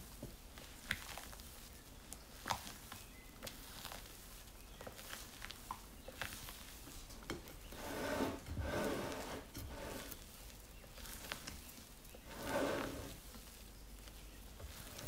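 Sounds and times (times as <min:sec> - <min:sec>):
spatula squelching and scraping batter: 0:00.0 - 0:15.0.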